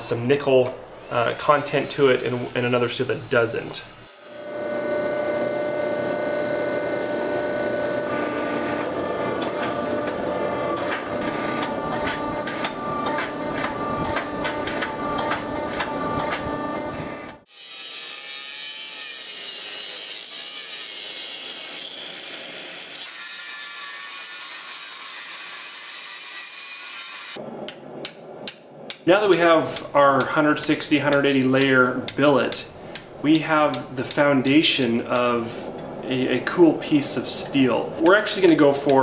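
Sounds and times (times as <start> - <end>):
hydraulic press humming: 1.0 - 17.4
angle grinder whining: 1.0 - 17.8.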